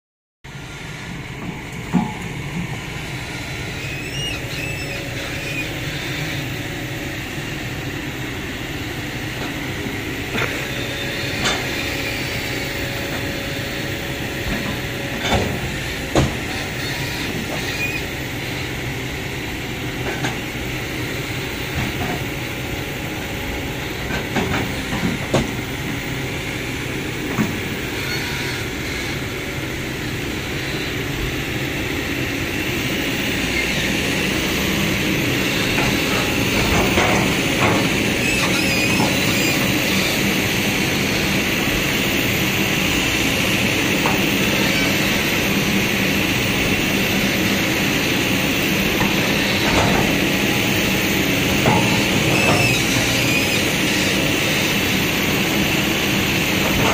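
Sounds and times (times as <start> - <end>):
excavator engine running: 0.5 - 56.9.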